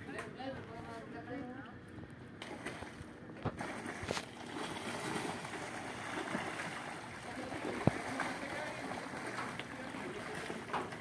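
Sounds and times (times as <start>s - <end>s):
water sloshing and splashing: 2.4s - 11.0s.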